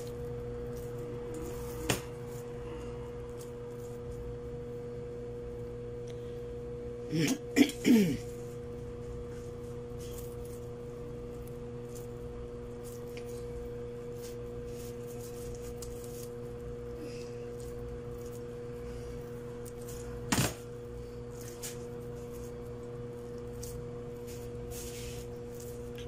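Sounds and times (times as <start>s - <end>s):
electrical hum: 0.0s - 26.0s.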